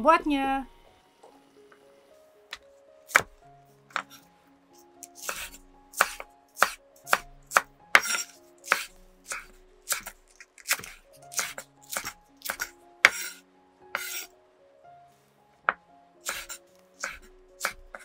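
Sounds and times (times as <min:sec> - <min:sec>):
knife cutting on wooden board: 0:02.5 - 0:03.3, 0:03.9 - 0:04.2, 0:05.0 - 0:14.3, 0:16.2 - 0:18.0.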